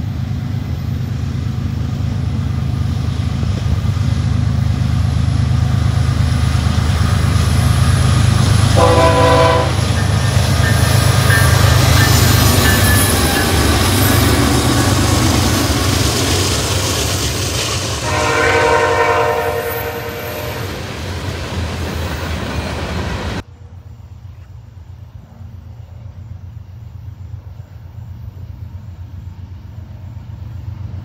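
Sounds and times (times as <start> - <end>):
train wheels clattering on rails: 0.0 - 23.4
locomotive engines rumbling: 0.0 - 31.0
train horn: 8.7 - 11.5, 18.0 - 20.8.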